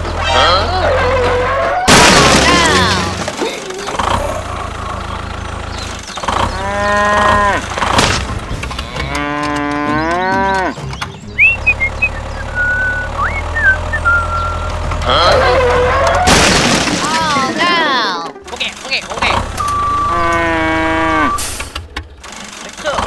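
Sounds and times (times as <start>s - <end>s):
cows mooing: 6.4s - 7.9s, 8.7s - 10.9s, 15.0s - 16.3s, 19.8s - 21.6s.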